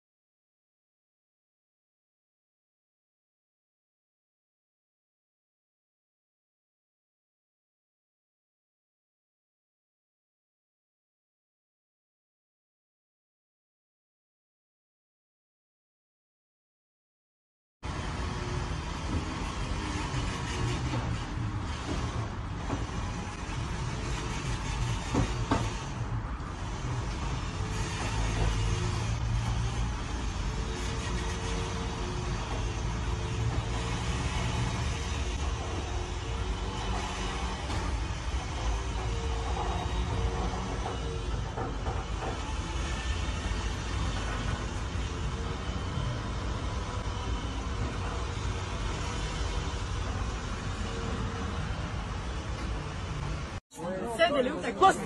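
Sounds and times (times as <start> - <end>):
surrounding traffic: 17.8 - 55.0.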